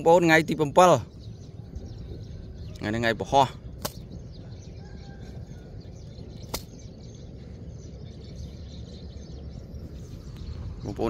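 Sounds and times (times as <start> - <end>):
low rumbling outdoor noise: 0.0 - 11.0
sharp click: 3.8 - 4.0, 6.4 - 6.8.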